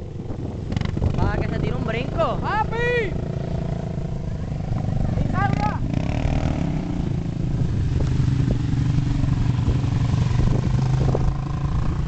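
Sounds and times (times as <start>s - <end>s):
quad engine running: 0.0s - 12.0s.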